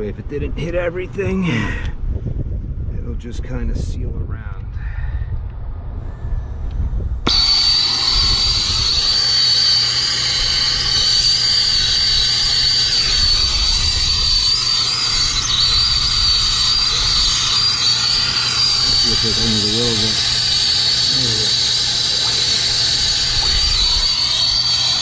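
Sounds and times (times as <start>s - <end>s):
torch flame hissing: 7.2s - 25.0s.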